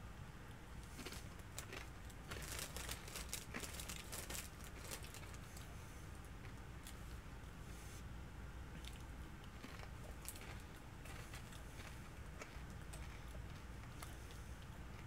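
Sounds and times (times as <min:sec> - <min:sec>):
plastic chip bag crinkling: 0:00.9 - 0:05.5, 0:09.6 - 0:14.0.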